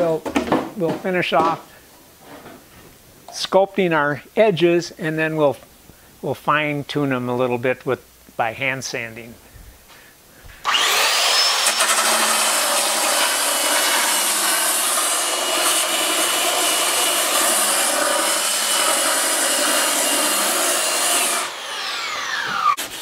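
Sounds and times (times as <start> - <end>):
electric belt sander grinding wood: 10.6 - 23.0.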